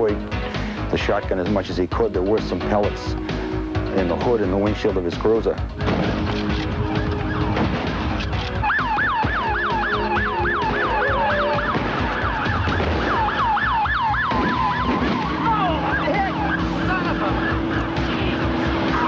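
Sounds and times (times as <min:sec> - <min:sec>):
police siren yelping: 0:06.6 - 0:19.0.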